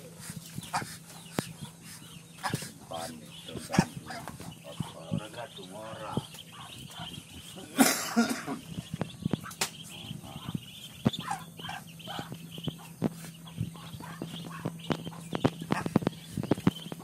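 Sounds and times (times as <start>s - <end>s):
ducklings peeping: 0.0s - 17.0s
footsteps on dirt: 12.2s - 17.0s.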